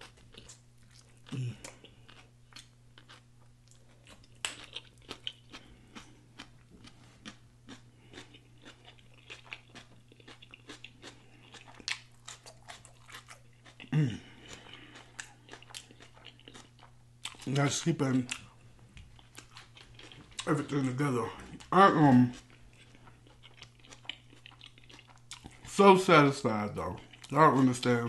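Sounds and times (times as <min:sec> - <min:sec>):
close chewing with mouth clicks: 0:00.0 - 0:25.8
short hummed voice sound: 0:01.3 - 0:01.8, 0:13.9 - 0:14.4.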